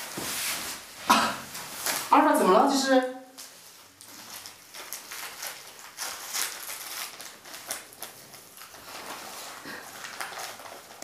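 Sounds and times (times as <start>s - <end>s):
sticky paper crinkling: 1.6s - 2.6s, 3.3s - 11.0s.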